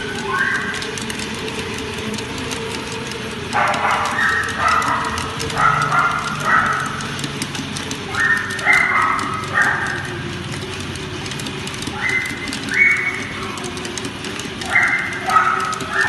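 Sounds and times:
treadmill humming: 0.0s - 16.0s
dog paws pattering on belt: 3.0s - 10.6s, 11.2s - 16.0s.

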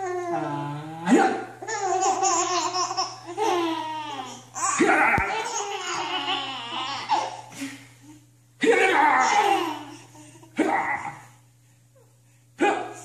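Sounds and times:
babies laughing: 1.6s - 7.5s, 8.9s - 10.2s.

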